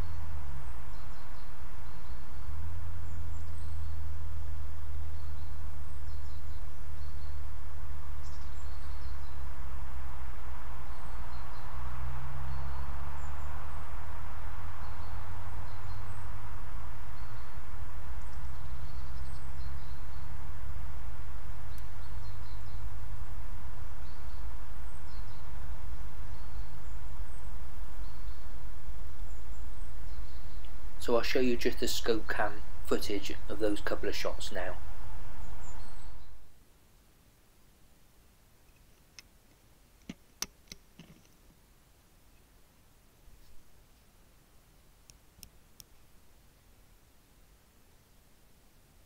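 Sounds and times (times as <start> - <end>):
small birds chirping: 0.0 - 36.6
steady low rumble: 0.0 - 36.6.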